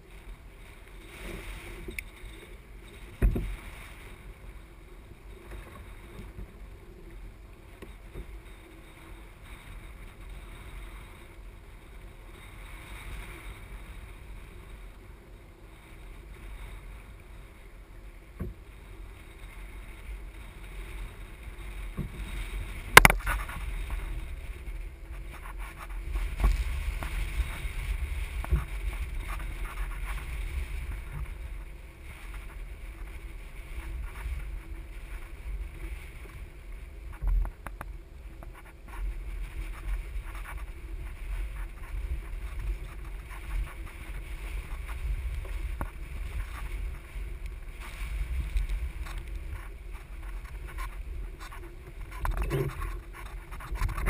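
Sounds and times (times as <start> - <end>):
wind on microphone: 0.0 - 54.0.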